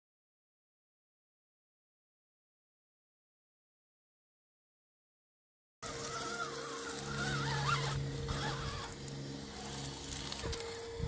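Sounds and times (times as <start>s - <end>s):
toy car electric motor whine: 5.8s - 11.0s.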